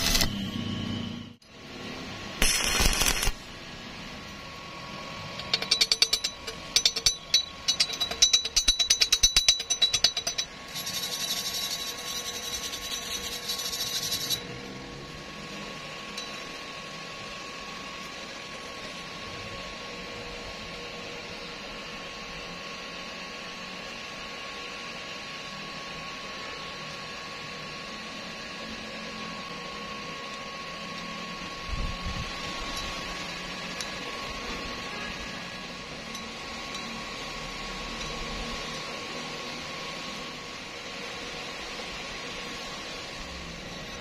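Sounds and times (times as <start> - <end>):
welding arc crackle: 0.0 - 0.5, 2.4 - 3.8
wire brush scrubbing metal: 2.4 - 3.4, 5.4 - 14.4.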